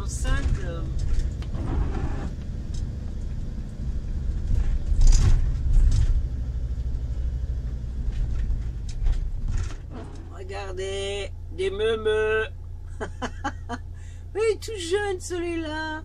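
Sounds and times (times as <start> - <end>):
engine and road rumble: 0.0 - 16.0.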